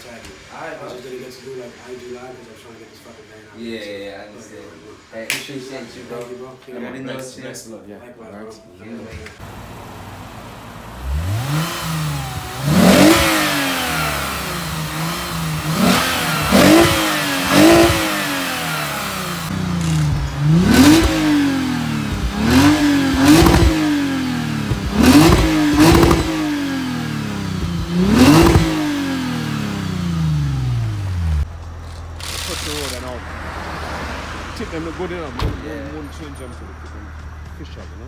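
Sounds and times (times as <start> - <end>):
car engine revving: 9.4 - 37.3.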